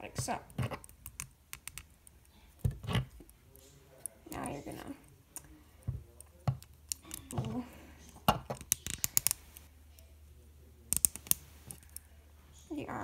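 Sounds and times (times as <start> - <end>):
plastic parts clicking and snapping: 0.5 - 4.6, 5.4 - 9.7, 10.9 - 12.0.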